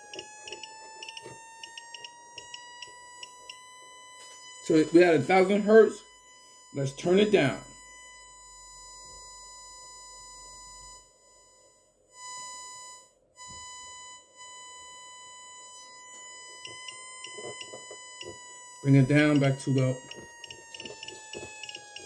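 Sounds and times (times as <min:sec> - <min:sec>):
small clicks: 0:00.0 - 0:03.6
steady pure test tone: 0:04.2 - 0:08.3, 0:15.7 - 0:22.0.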